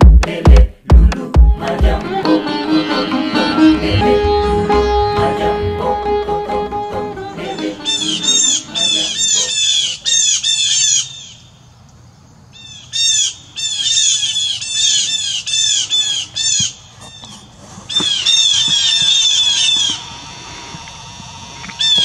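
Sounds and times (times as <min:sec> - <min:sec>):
blue jay harsh calls: 0:07.8 - 0:11.5, 0:12.6 - 0:17.3, 0:17.9 - 0:22.0.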